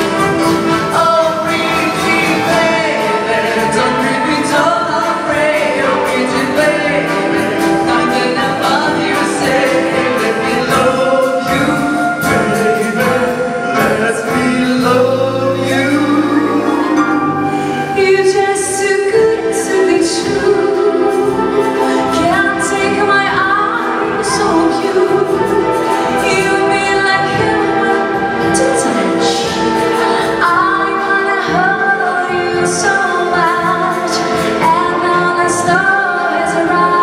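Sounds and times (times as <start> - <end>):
wind band playing: 0.0 - 37.0
woman singing into microphone: 15.8 - 37.0.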